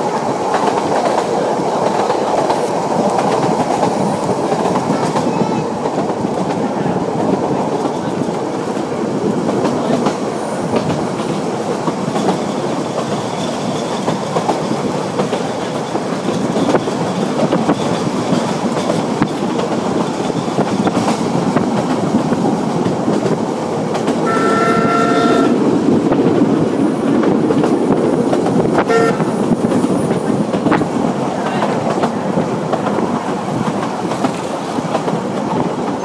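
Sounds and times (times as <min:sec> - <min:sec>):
train carriage running on rails: 0:00.0 - 0:36.0
steam locomotive whistle: 0:24.2 - 0:25.6, 0:28.8 - 0:29.3.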